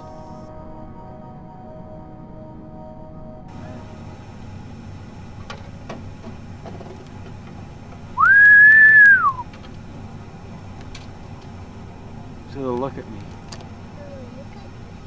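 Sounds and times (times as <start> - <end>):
low steady rumble: 2.7 - 15.0
person whistling a held note: 8.2 - 9.4.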